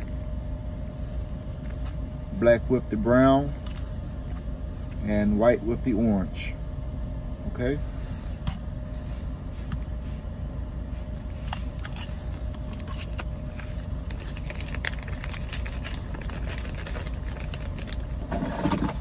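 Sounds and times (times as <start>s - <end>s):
faint hum: 0.0s - 19.0s
plastic bag crinkling: 11.6s - 18.2s.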